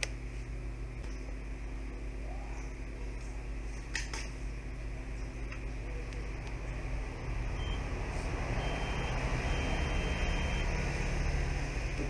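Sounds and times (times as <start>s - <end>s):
room noise hum and hiss: 0.0s - 12.0s
faint high steady tone: 7.1s - 10.9s.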